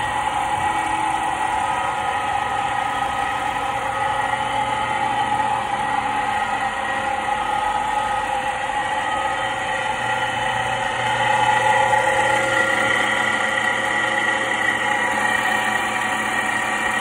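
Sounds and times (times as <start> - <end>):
cone mill motor whining: 0.0 - 17.0.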